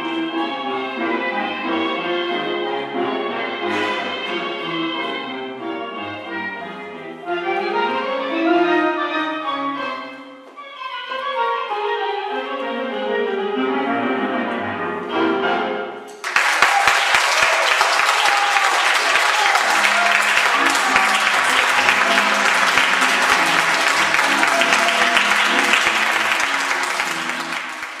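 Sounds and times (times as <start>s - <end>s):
tango music: 0.0s - 16.2s, 17.0s - 28.0s
audience applause: 16.2s - 28.0s.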